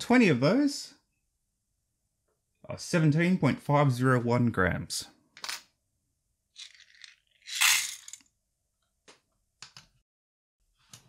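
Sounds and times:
pellets clattering into metal lid: 0:06.6 - 0:08.2.

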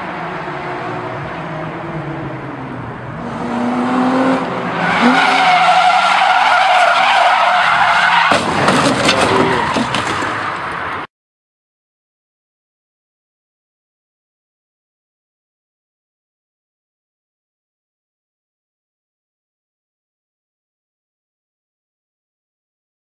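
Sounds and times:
car engine revving: 0:00.0 - 0:10.6
tyres squealing: 0:04.8 - 0:10.4.

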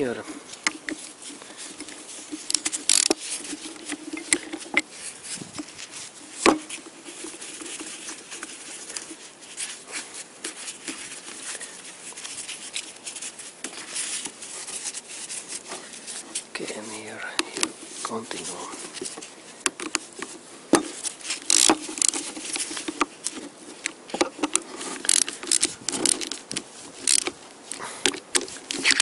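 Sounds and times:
ratchet wrench clicking: 0:02.4 - 0:03.2, 0:21.5 - 0:22.2, 0:25.0 - 0:27.3.

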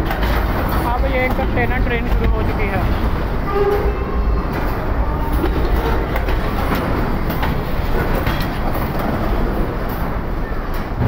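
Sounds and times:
freight train wheels rumbling: 0:00.0 - 0:11.0
rail joint clicks and clatter: 0:00.0 - 0:11.0.

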